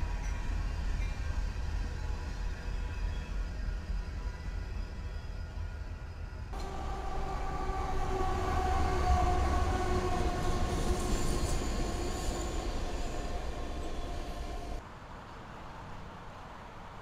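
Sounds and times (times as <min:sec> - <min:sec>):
freight train rumbling past: 0:00.0 - 0:14.8
locomotive horn chord: 0:06.6 - 0:14.8.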